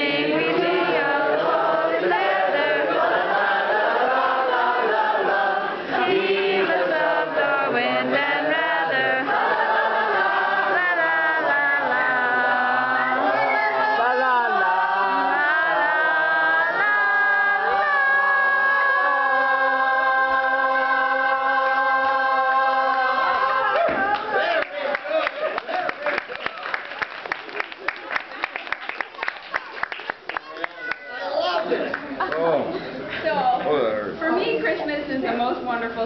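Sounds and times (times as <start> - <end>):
group singing a carol: 0.0 - 24.1.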